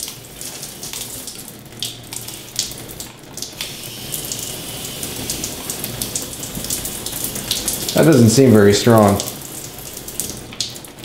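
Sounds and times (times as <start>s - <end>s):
shower spray hissing on tile: 3.6s - 8.3s.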